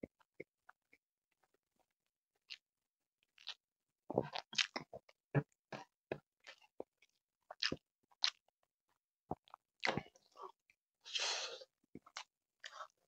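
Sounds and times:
mouth chewing wet smacks: 4.2s - 5.0s, 7.5s - 8.4s
noisy breath: 11.1s - 11.7s.

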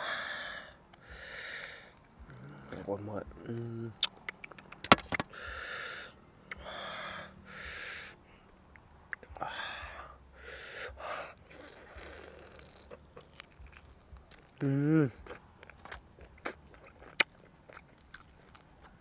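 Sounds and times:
person breathing out in hissing puffs: 0.0s - 2.0s, 5.3s - 8.4s, 9.4s - 11.4s
sharp clicks: 4.0s - 5.3s.

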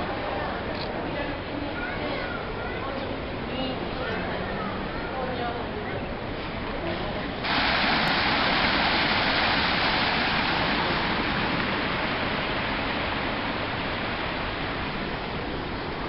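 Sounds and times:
waterfall splashing into a pool: 7.4s - 16.0s.

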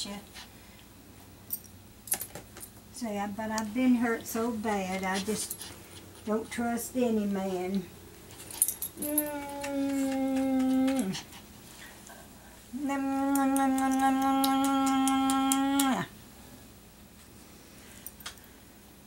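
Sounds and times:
voice holding howl-like notes: 9.0s - 11.2s, 12.7s - 16.2s.

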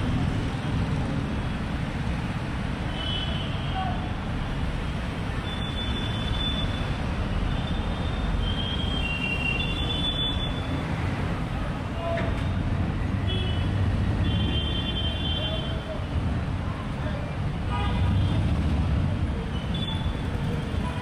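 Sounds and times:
busy street traffic: 0.0s - 21.0s.

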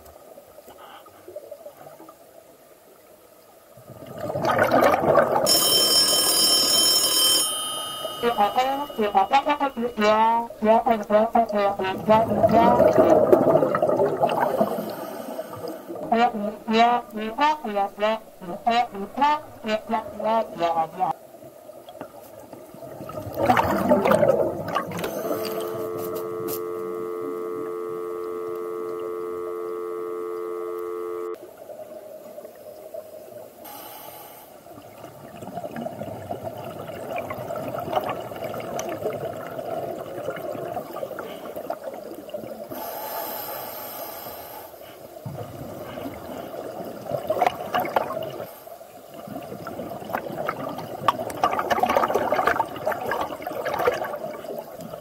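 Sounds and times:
underwater exhaust bubbles: 3.7s - 5.6s, 8.0s - 33.6s, 34.6s - 55.0s
telephone dial tone: 5.5s - 10.0s, 24.9s - 31.4s
scuba regulator breathing: 14.4s - 16.0s, 24.9s - 26.2s, 33.7s - 34.6s, 42.7s - 45.1s.

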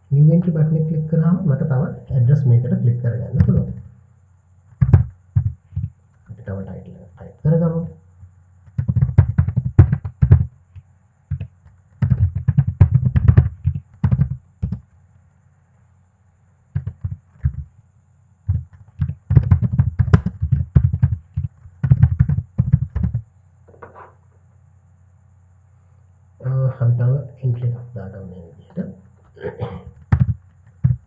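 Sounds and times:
computer keyboard typing: 4.8s - 5.9s, 8.7s - 10.5s, 11.3s - 14.8s, 16.8s - 17.7s, 18.5s - 23.2s, 30.0s - 31.0s.

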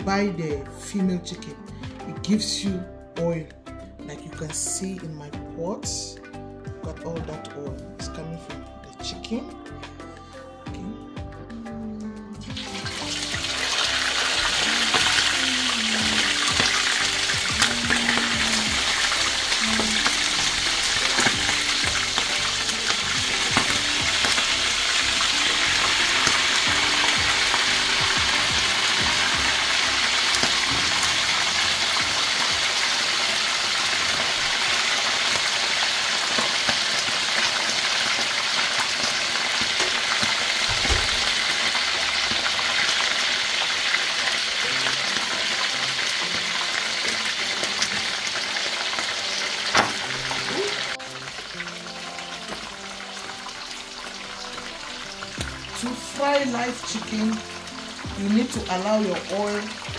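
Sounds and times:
chicken sizzling in oil: 12.5s - 59.9s.

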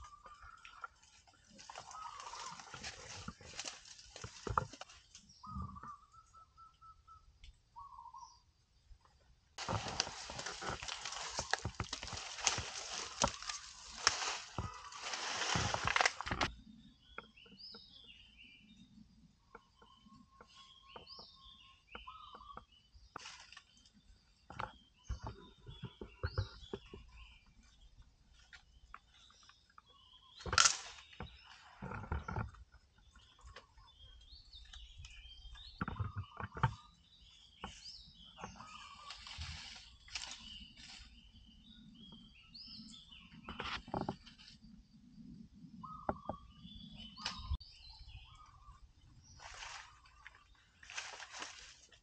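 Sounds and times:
birds chirping: 0.0s - 52.0s
loud rustle of leaves: 1.5s - 4.8s, 9.6s - 16.5s, 50.8s - 52.0s
twigs and branches snapping: 1.6s - 5.2s, 9.6s - 16.5s, 30.4s - 31.2s, 39.1s - 40.5s, 49.4s - 52.0s.

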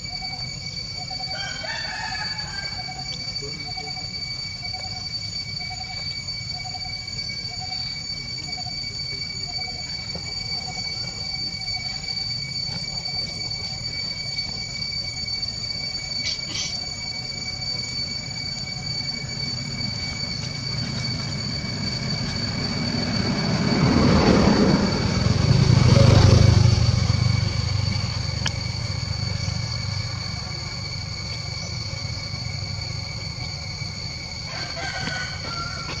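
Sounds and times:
steady high-pitched whine: 0.0s - 36.0s
vehicle engine passing by: 22.6s - 30.2s.

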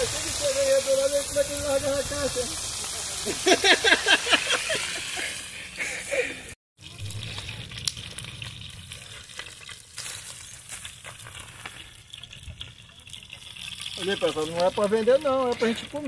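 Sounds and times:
fish sizzling in oil: 0.0s - 5.8s, 6.8s - 16.0s.

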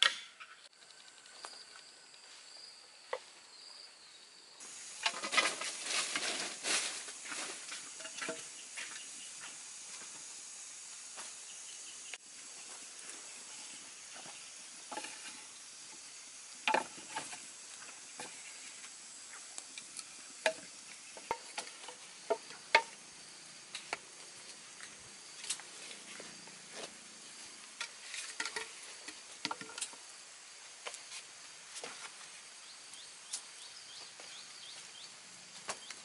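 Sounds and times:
low steady hiss: 0.0s - 36.0s
wood fire crackling: 12.1s - 22.4s.

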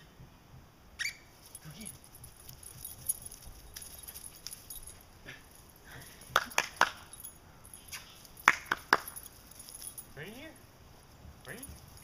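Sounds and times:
sharp hand claps: 6.3s - 7.1s, 8.4s - 9.2s.

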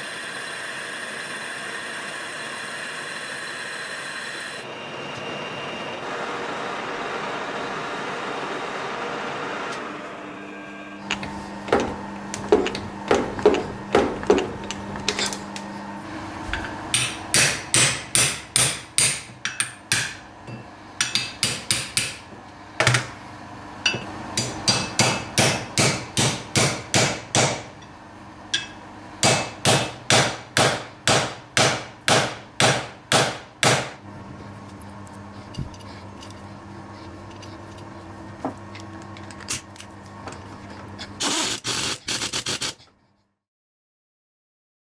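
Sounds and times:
lathe running: 0.0s - 20.1s.

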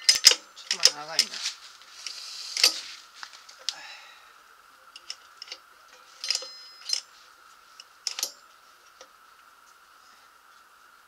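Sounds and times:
metal parts clicking and clinking: 0.0s - 1.4s, 5.0s - 7.1s, 8.0s - 8.4s
faint steady hum: 0.0s - 11.0s.

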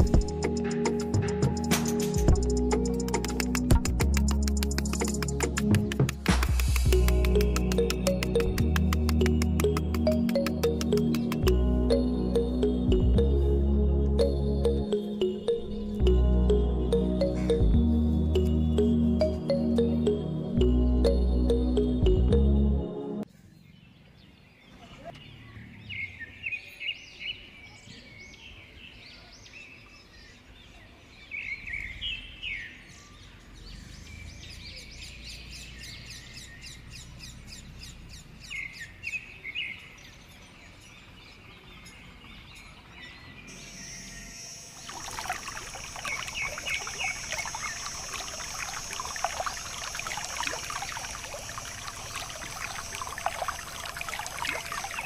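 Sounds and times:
water splashing and trickling: 0.0s - 13.6s, 44.7s - 55.0s
birds chirping: 6.7s - 13.4s, 31.4s - 55.0s.

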